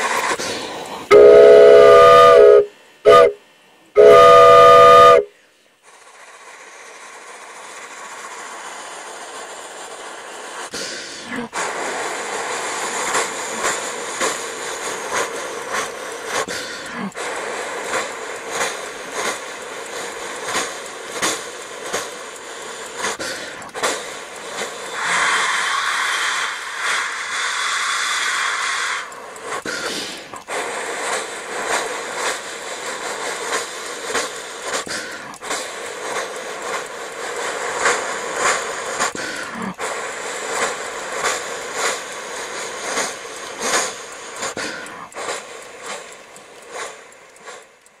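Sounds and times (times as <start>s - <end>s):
model train steam whistle: 0.0s - 5.4s, 24.6s - 35.6s
model locomotive chuffing: 0.0s - 48.0s.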